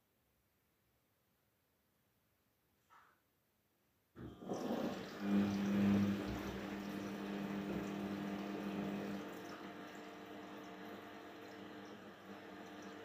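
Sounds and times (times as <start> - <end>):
washing machine motor hum: 4.2 - 13.0.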